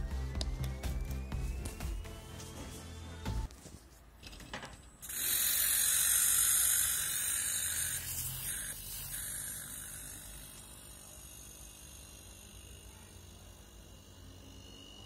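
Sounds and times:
refrigerator compressor running: 0:05.0 - 0:15.0.

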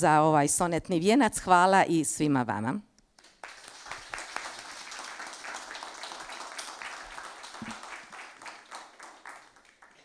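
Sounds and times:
crowd applauding: 0:03.2 - 0:10.0.

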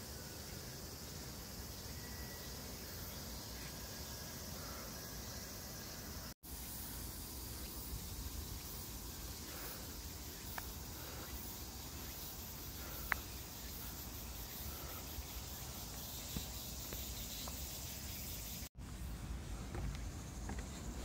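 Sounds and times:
outdoor ambient hiss: 0:00.0 - 0:21.0.

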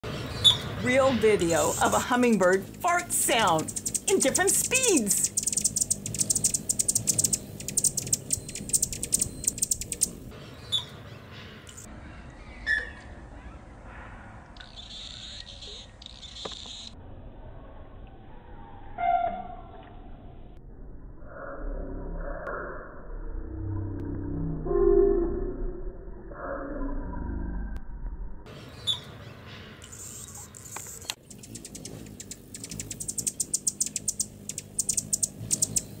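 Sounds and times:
hummingbird buzzing rattle: 0:01.4 - 0:10.3, 0:29.8 - 0:36.0
slowed low buzz: 0:01.7 - 0:10.4, 0:19.6 - 0:28.5, 0:29.8 - 0:36.0.

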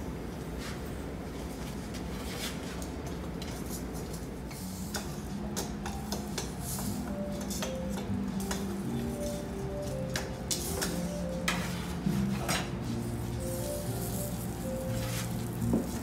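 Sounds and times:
steady background noise: 0:00.0 - 0:16.0
music: 0:04.5 - 0:16.0
dishes and utensils clinking: 0:04.9 - 0:12.8.

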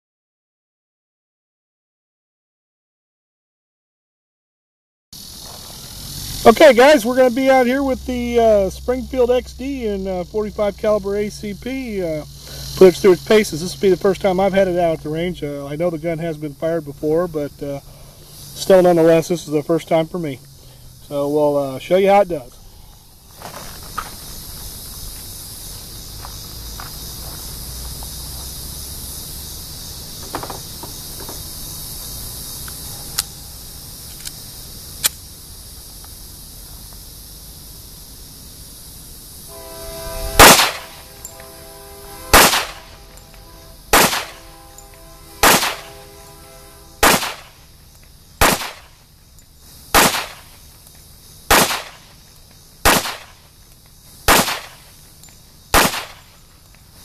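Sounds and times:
pistol shots with echo: 0:43.9 - 0:44.4, 0:45.4 - 0:45.9, 0:47.0 - 0:47.5, 0:48.4 - 0:48.8, 0:50.0 - 0:50.4, 0:51.5 - 0:52.0, 0:52.9 - 0:53.3, 0:54.3 - 0:54.7, 0:55.8 - 0:56.2.

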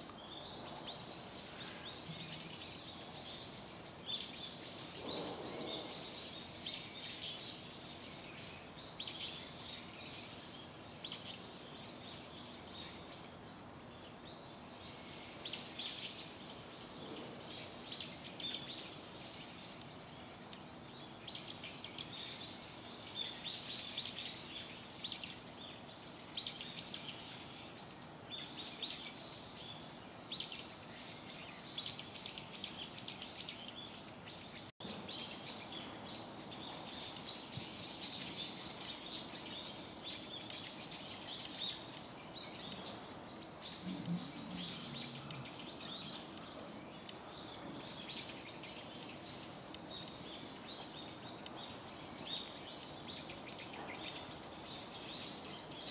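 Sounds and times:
small birds chirping: 0:00.0 - 0:55.9
steady outdoor hiss: 0:00.0 - 0:55.9.

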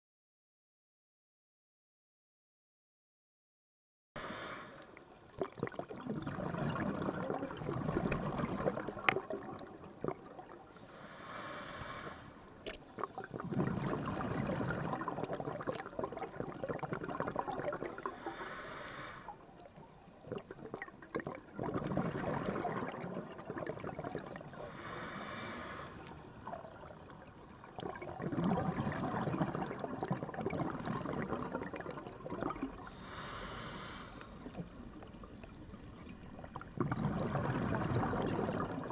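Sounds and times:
regulator inhale hiss: 0:04.2 - 0:04.9, 0:10.9 - 0:12.4, 0:18.1 - 0:19.4, 0:24.7 - 0:26.1, 0:32.9 - 0:34.4
bubbling exhaled air: 0:05.4 - 0:12.3, 0:13.0 - 0:19.4, 0:20.2 - 0:35.0, 0:36.2 - 0:38.9.

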